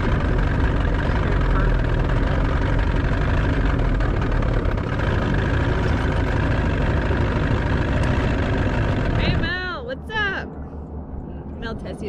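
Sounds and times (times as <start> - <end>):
motorboat engine running: 0.0 - 9.6.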